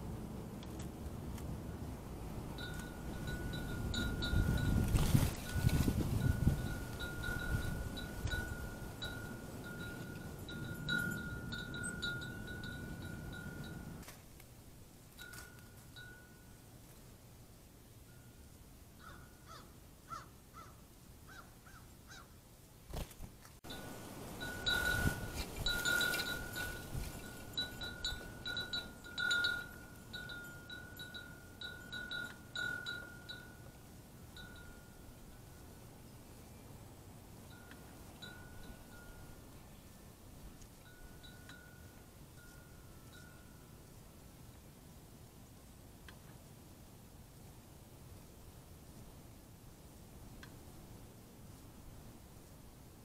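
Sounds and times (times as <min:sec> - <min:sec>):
low rumbling noise: 0:00.0 - 0:05.0
wind chime ringing: 0:02.5 - 0:14.0, 0:15.2 - 0:16.6, 0:23.7 - 0:35.9, 0:37.5 - 0:39.4, 0:40.8 - 0:43.8.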